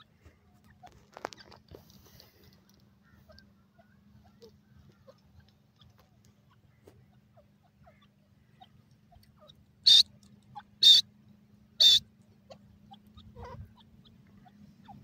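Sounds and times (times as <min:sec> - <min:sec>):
bird high-pitched calls: 0:03.0 - 0:15.0.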